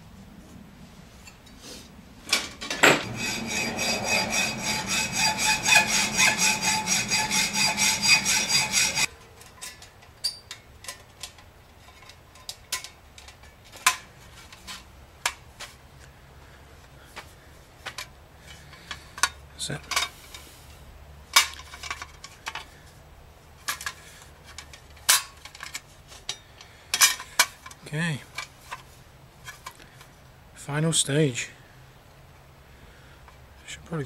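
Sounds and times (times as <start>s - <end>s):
tool grinding steel sheet: 3.0s - 9.1s.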